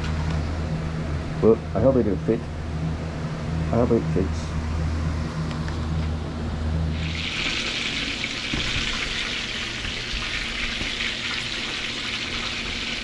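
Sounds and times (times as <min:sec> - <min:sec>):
fish sizzling in oil: 0:06.9 - 0:13.0.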